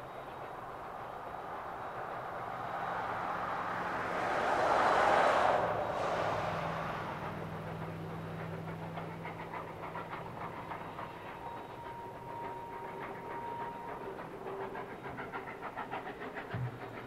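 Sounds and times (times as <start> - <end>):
low hum: 0.0 - 13.6
steam locomotive chuffing: 0.0 - 17.0.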